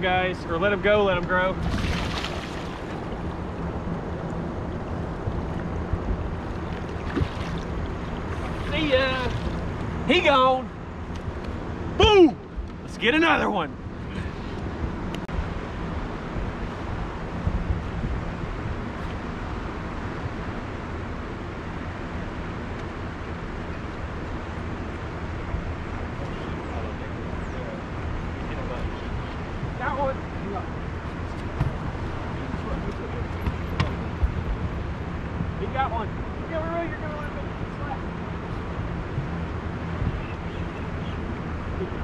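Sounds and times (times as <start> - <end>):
wind and water rushing: 0.0 - 23.2
steady low hum: 0.0 - 42.0
boat motor running: 0.6 - 15.2, 28.0 - 42.0
water noise: 0.8 - 11.0
wind on microphone: 14.7 - 20.6.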